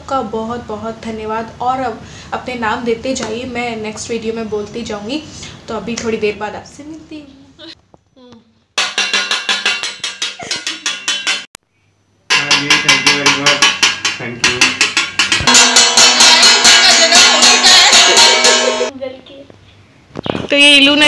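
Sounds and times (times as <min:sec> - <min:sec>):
spoons clanging on pot lids: 0:08.8 - 0:11.5, 0:12.3 - 0:18.9.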